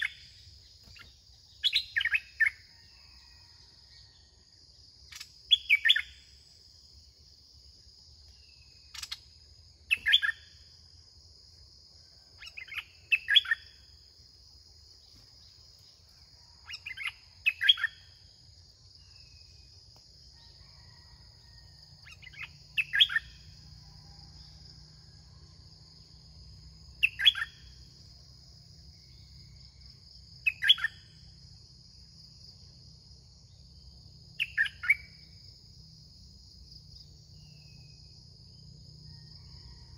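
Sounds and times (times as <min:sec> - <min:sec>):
bird singing bright phrases: 0:00.0 - 0:02.8, 0:05.5 - 0:06.3, 0:08.6 - 0:10.6, 0:12.4 - 0:13.8, 0:16.6 - 0:18.1, 0:22.0 - 0:23.5, 0:27.0 - 0:27.7, 0:30.4 - 0:31.1, 0:34.4 - 0:35.2
high insect drone: 0:00.0 - 0:39.9.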